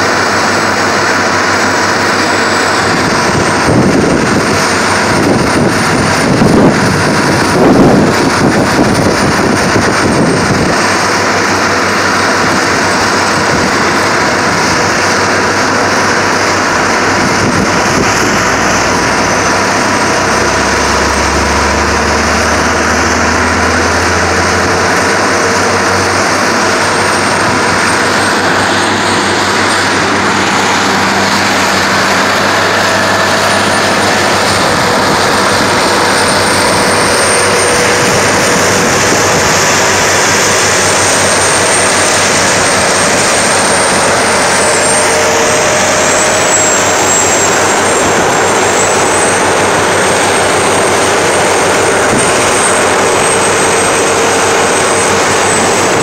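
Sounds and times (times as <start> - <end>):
diesel trucks driving past: 0.0 - 56.0
thin high whine: 0.0 - 56.0.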